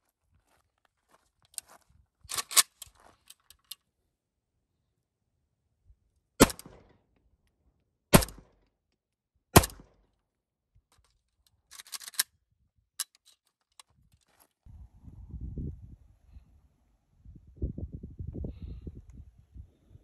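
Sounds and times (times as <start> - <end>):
rifle shots: 6.4 - 6.9, 8.2 - 8.5, 9.6 - 9.9.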